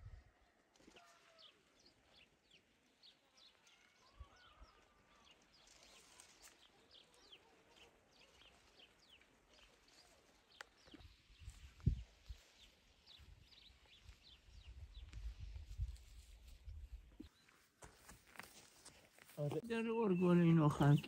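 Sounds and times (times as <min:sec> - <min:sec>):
birds chirping faintly: 0:19.4 - 0:21.0.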